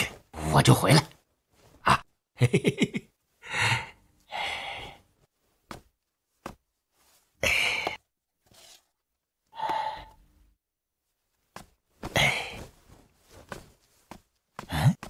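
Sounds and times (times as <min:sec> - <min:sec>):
man sighing and gasping: 0:07.4 - 0:08.0, 0:12.0 - 0:12.8, 0:14.6 - 0:15.0.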